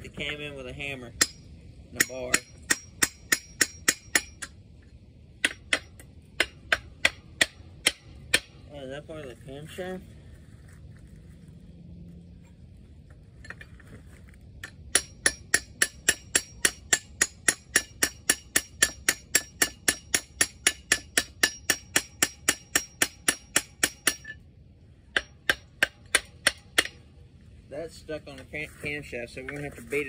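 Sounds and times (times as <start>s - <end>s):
hammer striking steel bar: 1.2s - 4.6s, 5.4s - 8.7s, 14.6s - 24.4s, 25.1s - 27.0s.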